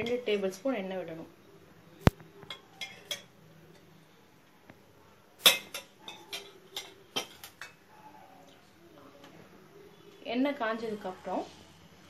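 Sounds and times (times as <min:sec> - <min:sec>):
metal kitchenware clinking: 0:02.5 - 0:03.8, 0:05.4 - 0:07.8.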